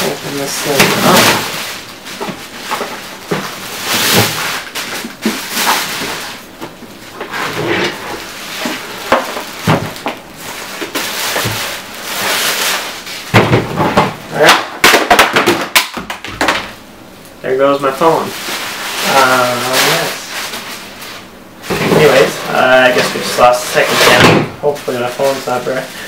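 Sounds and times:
plastic bag crinkling: 0.0 - 13.3, 17.8 - 21.2, 24.6 - 26.0.

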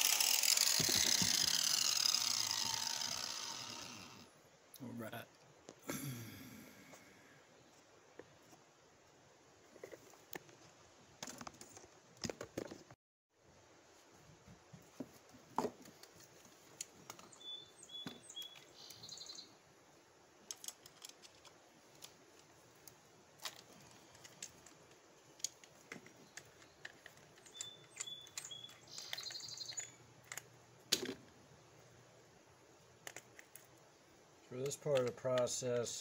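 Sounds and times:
bird chirping: 17.0 - 19.6, 26.1 - 30.1.

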